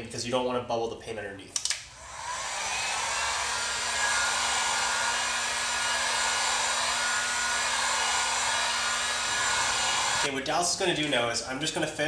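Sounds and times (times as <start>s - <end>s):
heat gun blowing air: 2.0s - 10.3s.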